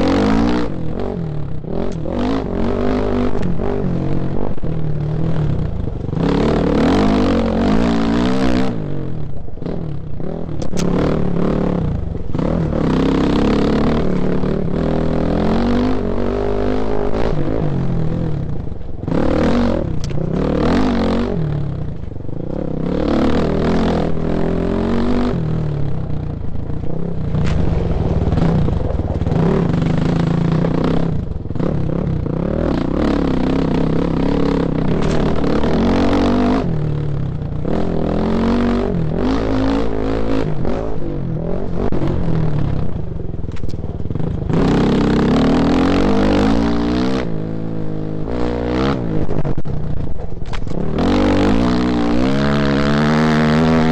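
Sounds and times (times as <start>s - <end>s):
motorcycle engine revving: 0.0s - 53.9s
stones clattering under tyres: 26.8s - 31.5s, 34.9s - 35.5s.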